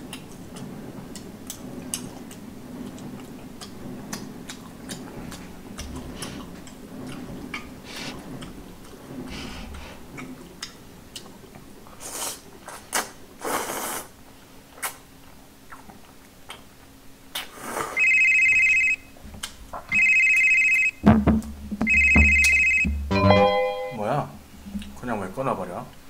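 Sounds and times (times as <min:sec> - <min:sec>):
slurping and chewing noodles: 0:00.0 - 0:16.7
telephone ringing: 0:18.0 - 0:19.1, 0:19.9 - 0:21.0, 0:21.8 - 0:24.0.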